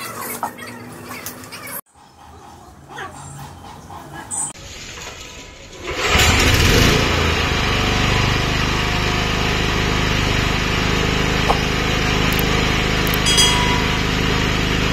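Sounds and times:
small generator engine running: 5.8 - 14.9.

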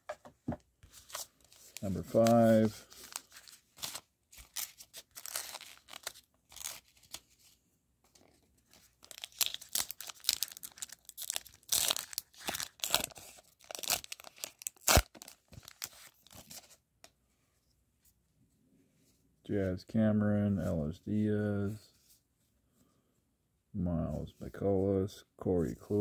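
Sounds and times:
foil wrapper tearing and crinkling: 1.6 - 7.2, 9.0 - 16.5.

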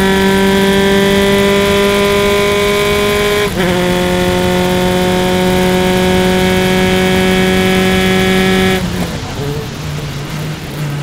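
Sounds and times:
race car engine at high revs: 0.0 - 11.0.

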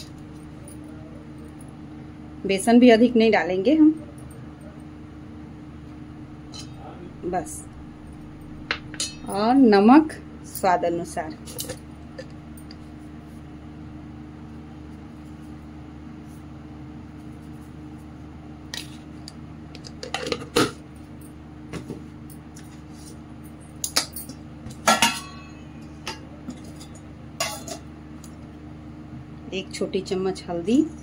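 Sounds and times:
low hum: 0.0 - 19.8.

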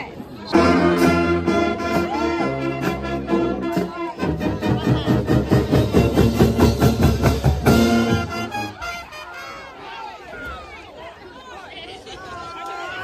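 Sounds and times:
brass chords: 0.5 - 9.8
marching band playing: 0.5 - 9.8
drums beating: 0.6 - 8.8.

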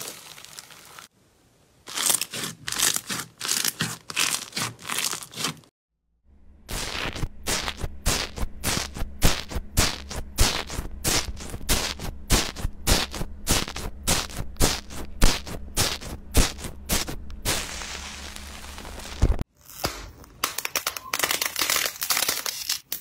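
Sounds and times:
foam slime crackling: 0.0 - 1.1, 1.8 - 5.7.

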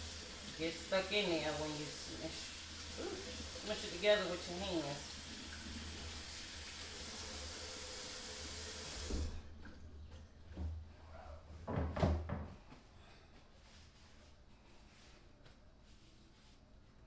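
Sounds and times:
faucet running: 0.0 - 9.9
paper towel rustling: 12.8 - 17.0.

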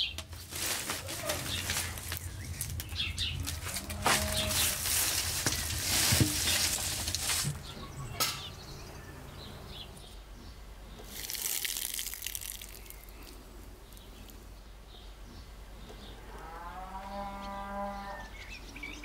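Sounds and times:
grain pouring into metal sieve: 11.1 - 13.1.

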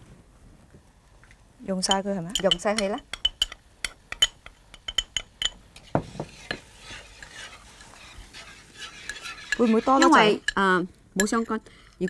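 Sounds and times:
spoon clinking against bowl: 1.9 - 5.6, 8.8 - 10.6
spoon scraping in bowl: 4.2 - 10.6.

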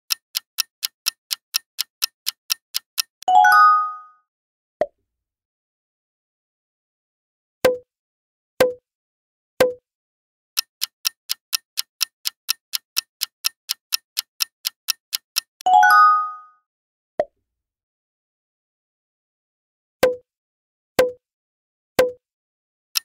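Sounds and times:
countdown clock ticking: 0.0 - 3.3, 10.6 - 15.7.

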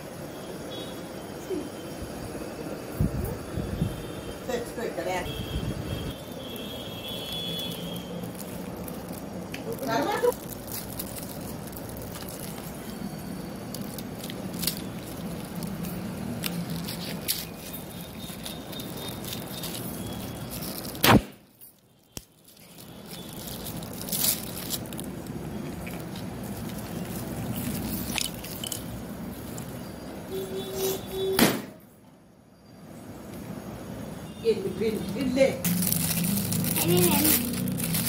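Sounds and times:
metallic gift wrap crinkling: 6.1 - 29.9, 35.2 - 38.0.

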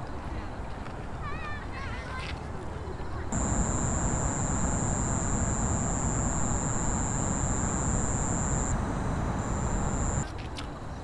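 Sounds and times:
high thin whine: 3.4 - 10.2.

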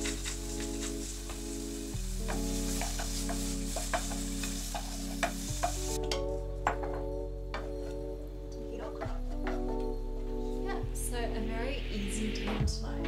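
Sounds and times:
meat sizzling in a pan: 0.0 - 6.0
soft background music: 0.0 - 13.0.

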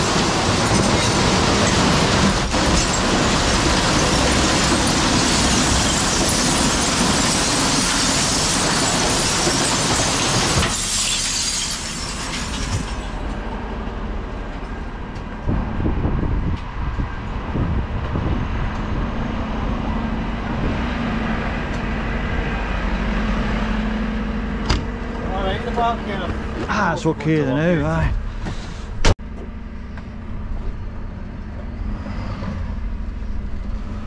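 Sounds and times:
glass bottles crashing into truck hopper: 0.0 - 13.3
truck engine running: 12.6 - 32.0.

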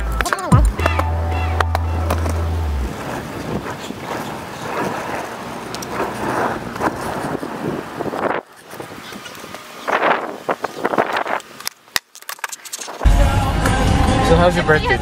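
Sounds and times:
skateboard wheels on rough asphalt: 0.0 - 13.1
wind buffeting microphone: 2.7 - 11.6.

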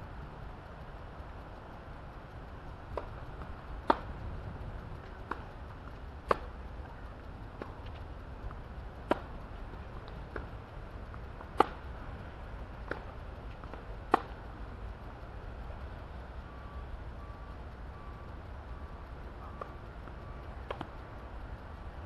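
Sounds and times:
low outdoor rumble: 0.0 - 22.0
tennis ball hitting racket: 2.9 - 4.2, 5.1 - 6.6, 7.6 - 10.6, 11.4 - 12.0, 12.8 - 14.4, 20.6 - 20.9.

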